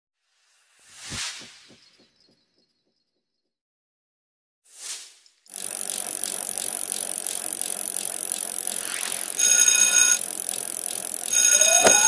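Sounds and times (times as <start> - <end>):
bicycle bell ringing: 5.5 - 12.0.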